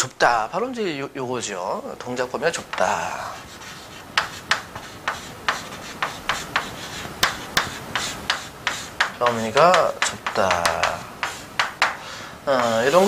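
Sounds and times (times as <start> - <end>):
chalk writing on chalkboard: 2.5 - 13.0.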